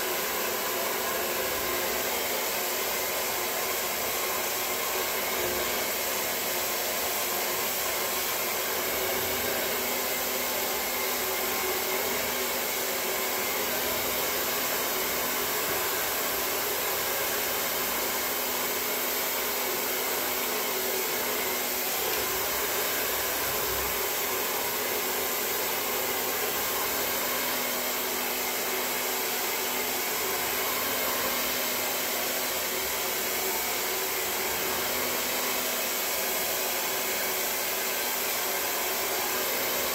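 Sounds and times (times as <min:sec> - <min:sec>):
hair dryer blowing: 0:00.0 - 0:39.9.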